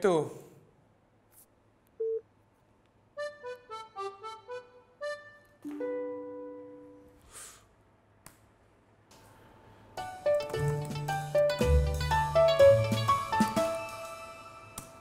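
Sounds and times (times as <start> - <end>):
keyboard music cue: 3.2 - 7.0, 10.0 - 15.0.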